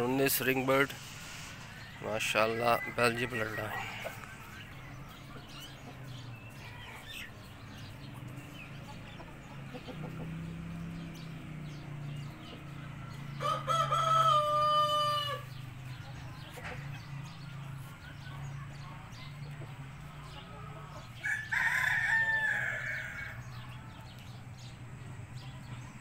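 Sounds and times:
rooster crowing: 0:13.2 - 0:15.6, 0:21.2 - 0:23.6.

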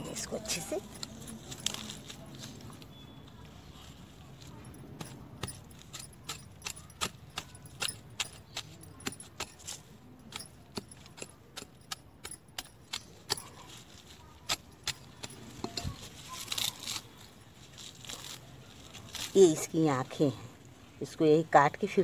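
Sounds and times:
rustling and scraping: 0:00.0 - 0:06.6, 0:13.3 - 0:20.1
roots snapping: 0:14.5 - 0:19.5.

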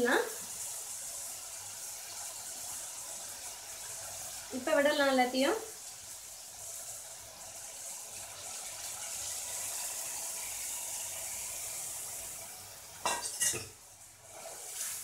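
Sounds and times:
liquid hissing in hot oil: 0:00.0 - 0:15.0
steel utensils clattering on pan: 0:13.0 - 0:13.8.

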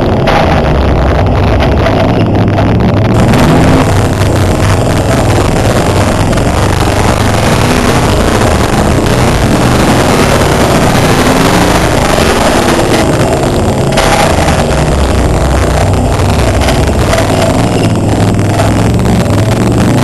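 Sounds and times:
heavy rush of noise: 0:00.0 - 0:20.0
race car engine running: 0:00.0 - 0:20.0.

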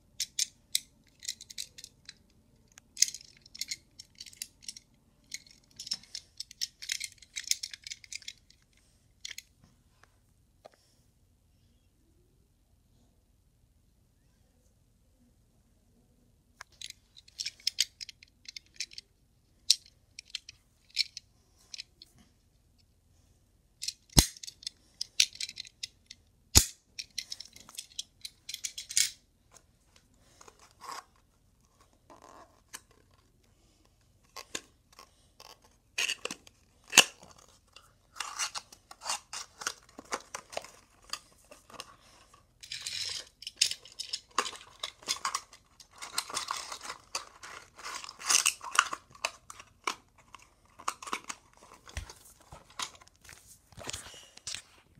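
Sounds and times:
toy cars clicking: 0:00.2 - 0:08.6, 0:42.6 - 0:50.0.

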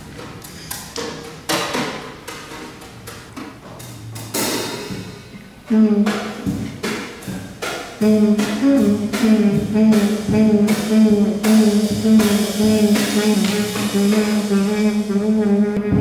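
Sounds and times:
drum kit and cymbal strokes: 0:00.0 - 0:16.0
trumpet holding a low note: 0:05.7 - 0:06.3, 0:08.0 - 0:16.0.

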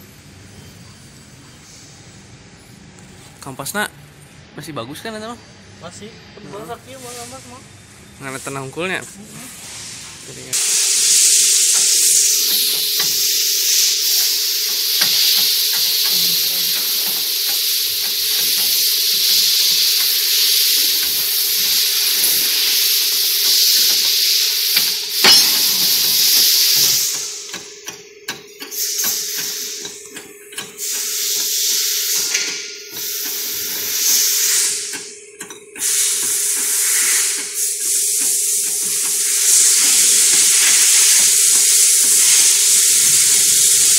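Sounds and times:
compressed air hiss: 0:06.9 - 0:07.6, 0:09.4 - 0:27.5, 0:28.7 - 0:30.0, 0:30.8 - 0:35.1, 0:35.8 - 0:43.9.

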